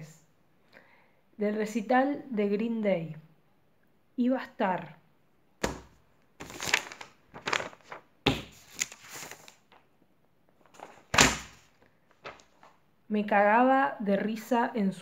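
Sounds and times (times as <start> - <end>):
paper sheets rustling and flapping: 5.6 - 9.9, 10.6 - 12.8.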